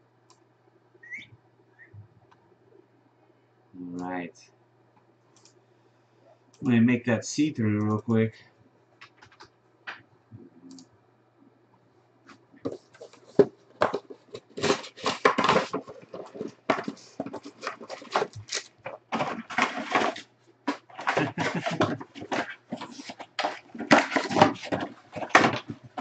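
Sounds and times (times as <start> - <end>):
foil packaging crinkling: 12.9 - 26.0
cardboard box tearing: 13.9 - 26.0.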